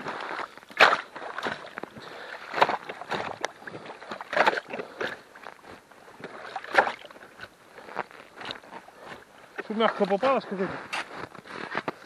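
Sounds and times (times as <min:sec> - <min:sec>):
ice chisel chopping wet roots: 0:00.7 - 0:01.7, 0:02.5 - 0:03.5.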